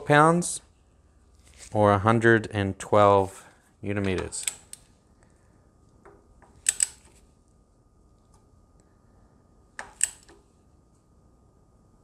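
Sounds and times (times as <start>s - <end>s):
wrench clicking: 6.5s - 7.1s.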